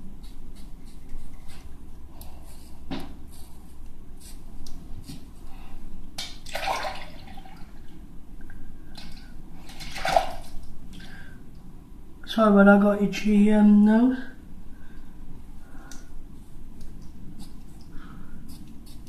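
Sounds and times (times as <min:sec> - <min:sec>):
water splashing: 0:09.1 - 0:10.6.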